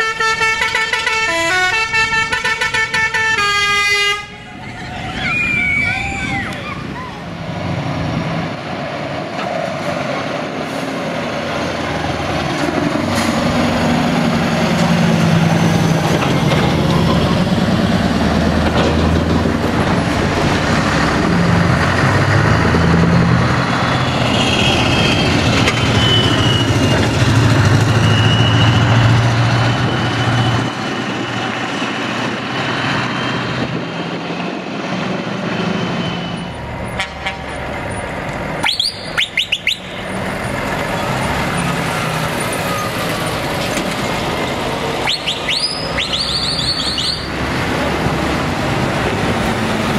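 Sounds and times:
diesel lorries pulling away: 0.0 - 49.9
thin high whistle: 24.0 - 27.1, 27.9 - 28.9, 45.0 - 47.3.

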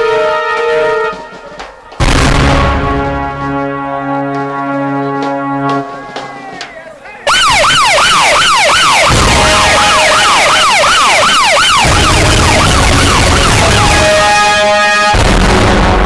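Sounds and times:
music with held notes: 2.7 - 6.9
police siren wailing: 3.6 - 15.3.

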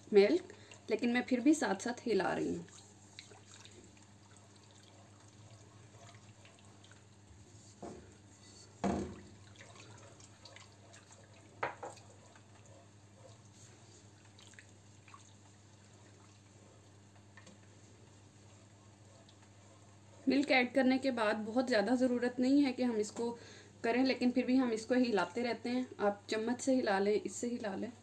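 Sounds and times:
whisk stirring sauce in pan: 2.6 - 7.2, 9.4 - 20.5.

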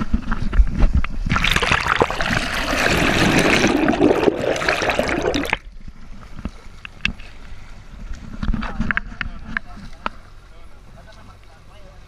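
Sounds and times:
water rushing and bubbling underwater: 0.0 - 7.2.

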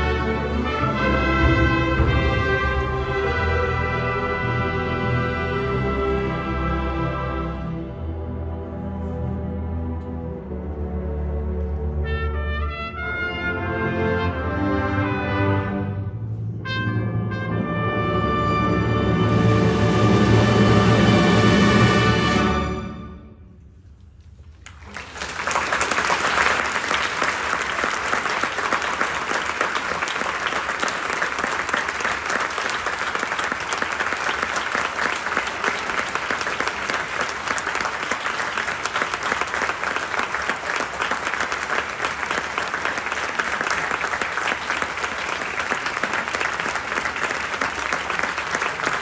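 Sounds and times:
audience applauding: 24.6 - 49.0.

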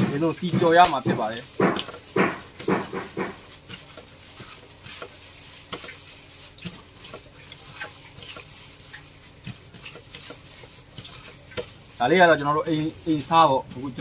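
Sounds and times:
meat clicking against metal tray: 0.0 - 4.1
wet squelches of meat mixing: 0.0 - 14.0.

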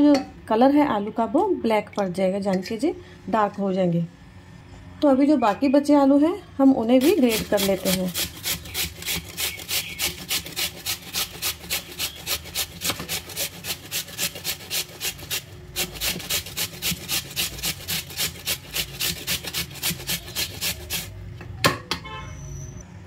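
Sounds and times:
potato rasping on grater: 7.0 - 21.2.

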